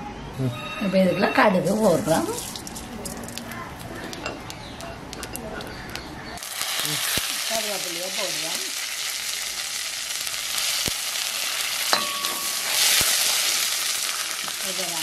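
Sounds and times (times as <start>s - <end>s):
ladle ringing on metal pan: 0.6s - 2.4s, 11.9s - 12.7s
chillies sizzling in hot oil: 1.6s - 15.0s.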